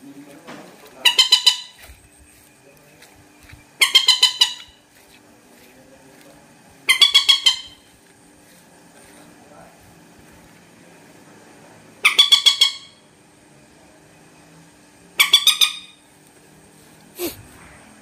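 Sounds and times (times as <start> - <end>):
moorhen calling: 0.0 - 5.0, 6.8 - 8.1, 12.0 - 13.2, 15.1 - 16.1.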